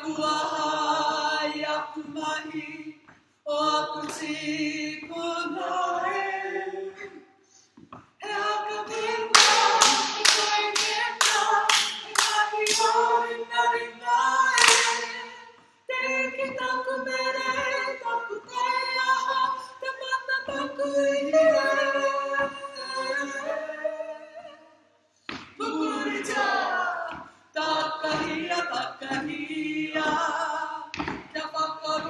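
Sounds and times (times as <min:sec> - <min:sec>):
group singing in unison: 0:00.0 - 0:32.0
hand strikes: 0:14.6 - 0:15.2.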